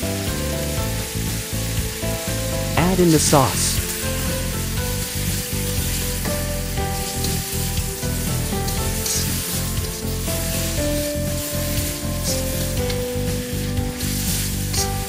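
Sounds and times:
food sizzling in a wok: 0.0 - 15.0
spatula stirring in a wok: 4.0 - 15.0.

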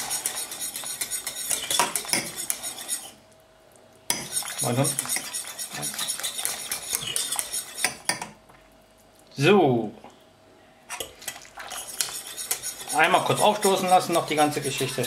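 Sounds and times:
whisk scraping a saucepan: 0.0 - 3.2, 4.1 - 8.2, 10.9 - 15.0.

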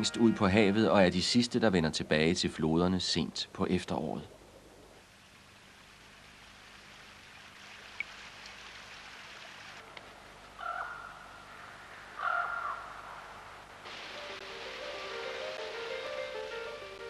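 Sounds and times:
rain hiss: 1.0 - 17.0
running water: 3.9 - 10.5, 13.8 - 17.0
crow cawing: 10.6 - 13.2.

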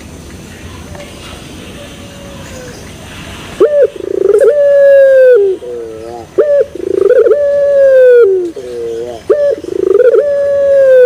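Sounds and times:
dove cooing: 3.6 - 11.0.

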